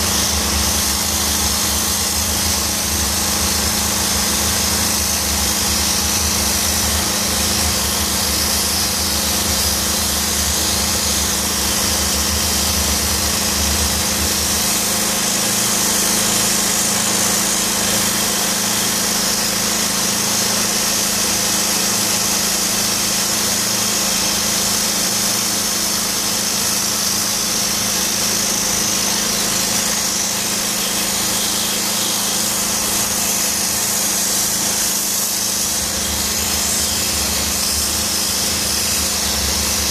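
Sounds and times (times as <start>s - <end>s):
machine hum: 0.0s - 18.2s, 28.1s - 39.9s
steam jetting hiss: 0.0s - 39.9s.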